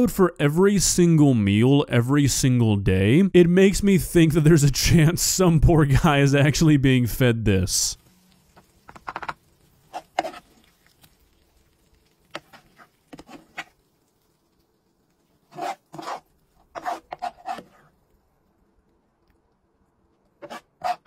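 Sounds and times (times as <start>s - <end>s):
metal spoon scraping frying pan: 9.8s - 10.8s, 15.4s - 17.8s, 20.4s - 21.0s.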